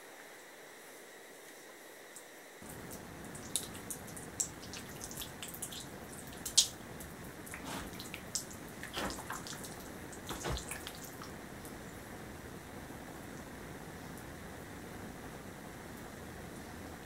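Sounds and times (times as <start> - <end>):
wet clay squelching: 7.4 - 11.3.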